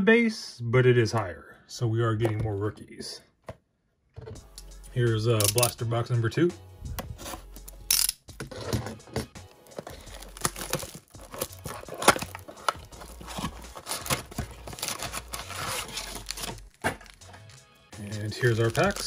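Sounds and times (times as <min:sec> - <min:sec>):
background music: 0:04.2 - 0:19.0
plastic wrap crinkling and tearing: 0:09.6 - 0:19.0.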